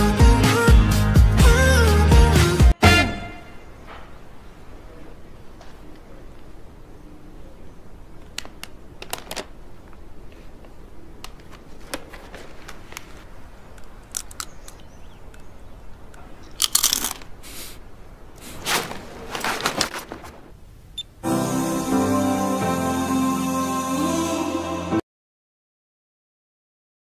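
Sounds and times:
snack bag rustling: 8.4s - 10.6s, 16.4s - 17.8s, 18.4s - 20.5s
crunching: 11.3s - 17.8s.

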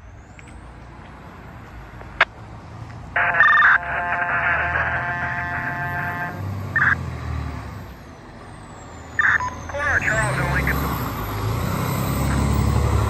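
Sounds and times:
truck engine rumble: 0.0s - 13.0s
fire engine air horn blast: 5.0s - 6.4s.

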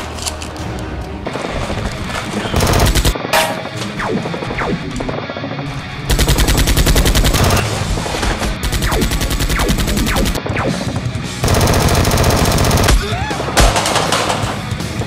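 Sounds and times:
music: 0.0s - 15.0s
rapid automatic gunfire: 2.6s - 3.2s, 6.1s - 7.7s, 8.6s - 10.4s, 11.4s - 13.0s.

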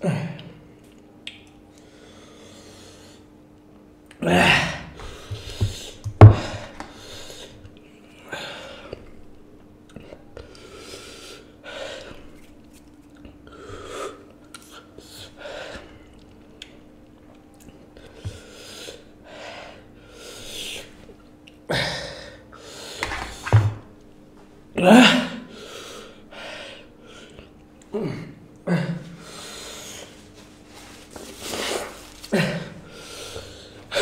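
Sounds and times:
man gasping and hissing breaths: 31.5s - 34.0s.

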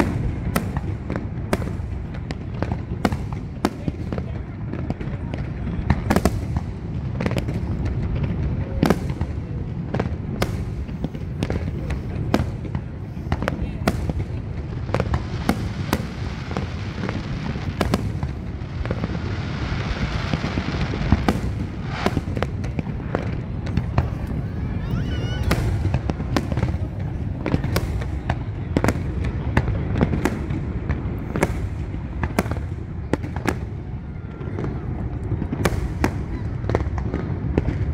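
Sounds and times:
steady low rumble: 0.0s - 24.8s
fireworks bursting with sharp bangs: 0.0s - 37.9s.

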